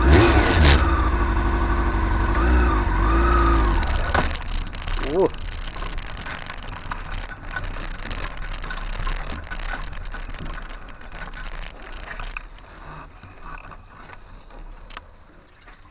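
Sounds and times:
motorcycle engine low hum: 0.0s - 15.9s
rattles and knocks: 3.3s - 15.0s.

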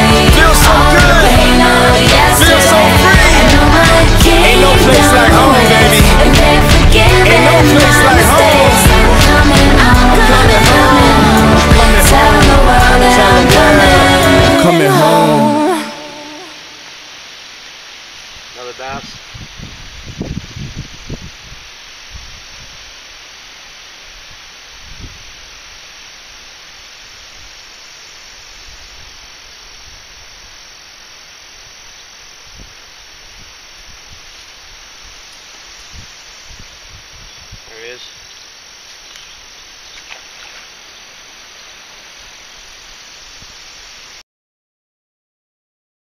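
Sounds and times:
insects chirring in grass: 16.8s - 44.2s.

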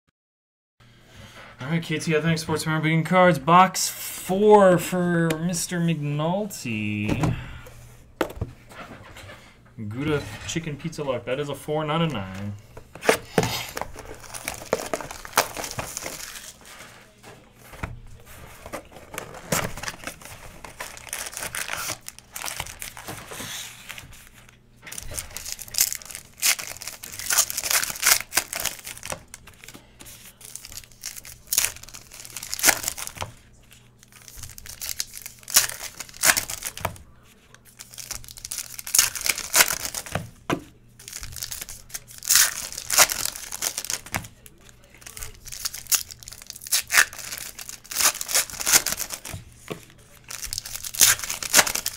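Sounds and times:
foil wrappers tearing and crinkling: 13.0s - 17.2s, 18.2s - 40.2s, 41.0s - 51.9s.

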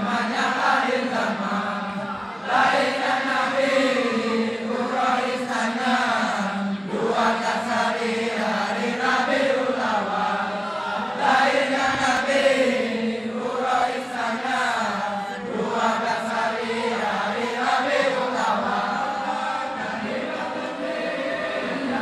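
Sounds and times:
men chanting together: 0.0s - 22.0s.

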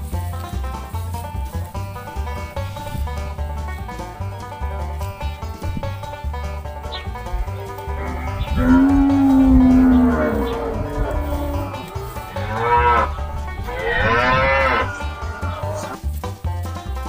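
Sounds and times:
background music: 0.0s - 17.0s
cattle mooing: 7.1s - 16.0s.

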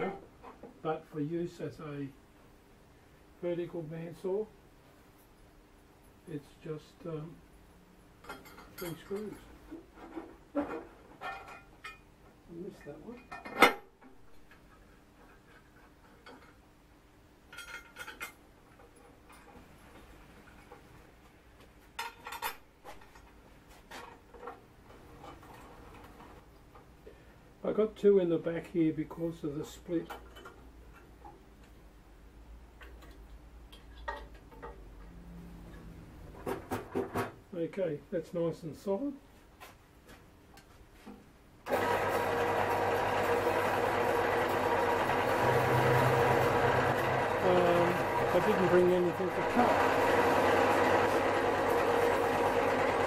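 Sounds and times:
screws and screwdriver clinking on metal: 8.2s - 9.5s
bandsaw running: 41.7s - 53.0s.

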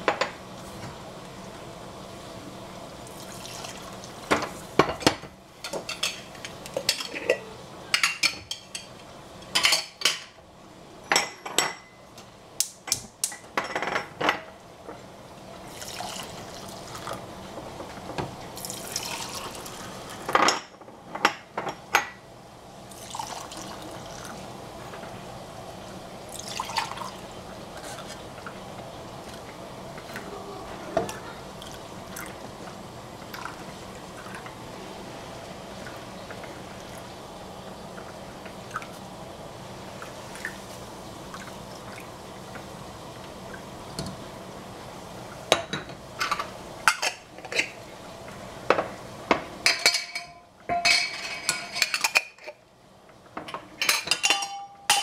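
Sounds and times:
milk pouring into jars: 3.1s - 4.0s, 15.7s - 17.2s, 18.6s - 19.9s
pan and glass jars clinking: 49.6s - 52.6s, 53.4s - 55.0s.

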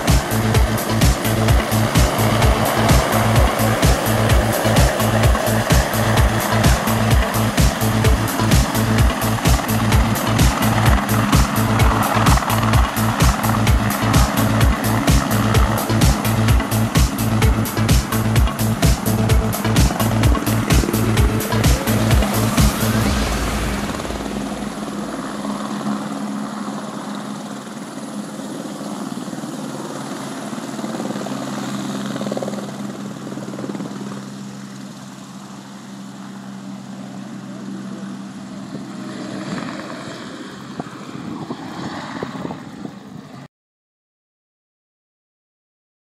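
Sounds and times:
helicopter rotor beat: 0.0s - 43.5s
turboshaft engine whine: 0.0s - 43.5s.

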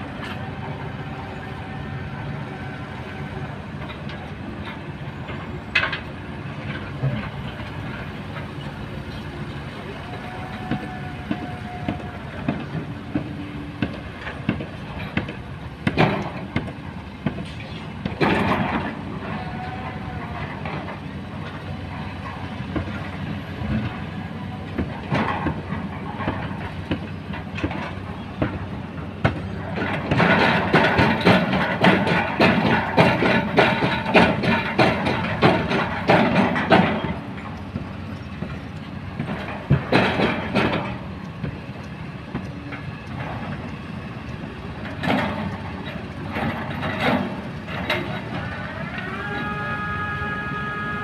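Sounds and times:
excavator engine running under load: 0.0s - 51.0s
rock and steel rattling and grinding: 14.0s - 41.6s, 42.4s - 49.1s.

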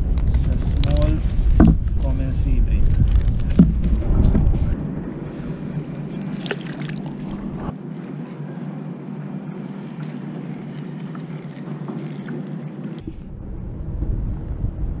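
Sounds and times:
wind on microphone: 0.0s - 7.8s, 12.1s - 15.0s
small waves lapping on hull: 3.4s - 7.8s, 9.2s - 13.3s.

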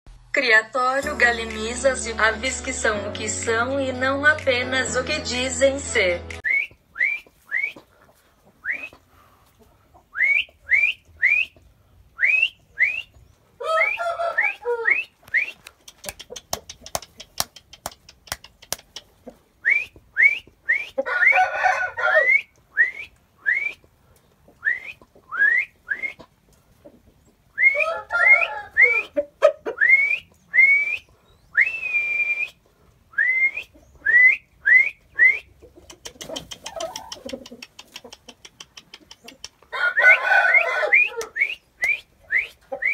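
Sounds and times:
chickens hoarse calls: 6.4s - 42.9s.

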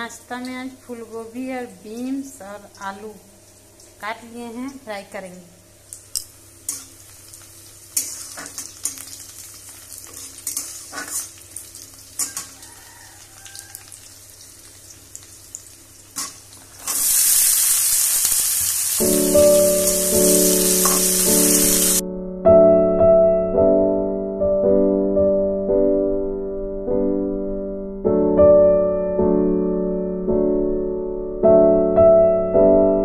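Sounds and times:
loud steady sizzle: 0.0s - 22.0s
chillies sizzling in oil: 0.1s - 22.0s
spatula scraping a steel pan: 10.1s - 11.3s, 12.2s - 12.6s
piano music: 19.0s - 33.0s.

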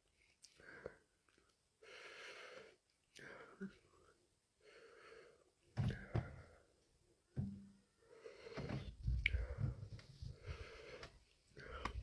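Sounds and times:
knocks and thumps: 5.8s - 6.5s, 7.4s - 7.7s
man breathing heavily and sniffing: 7.9s - 12.0s.

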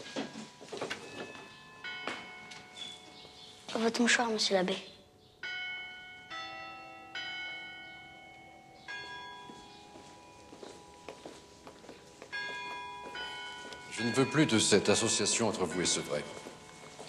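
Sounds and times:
church bells chiming: 0.0s - 17.0s.

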